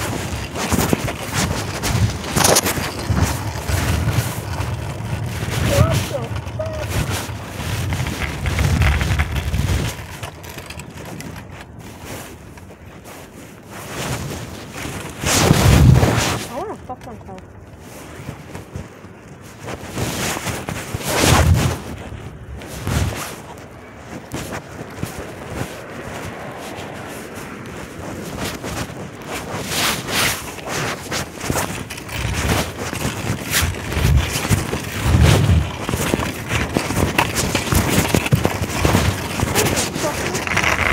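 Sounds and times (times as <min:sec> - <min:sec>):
cloth rubbing over microphone: 0:00.0 - 0:40.9
muffled low rumbles: 0:01.2 - 0:10.8.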